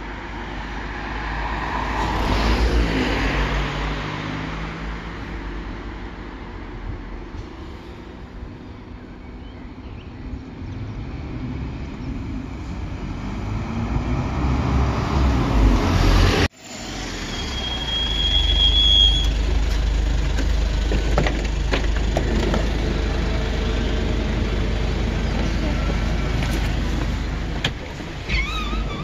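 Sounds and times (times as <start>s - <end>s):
car passing close by: 10.9s - 17.7s
brake squeal: 16.6s - 19.5s, 25.3s - 29.0s
minibus engine idling: 18.6s - 29.0s.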